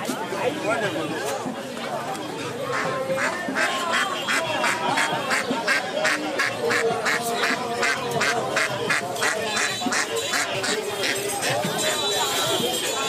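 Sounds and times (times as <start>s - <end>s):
ducks quacking: 2.6s - 12.3s.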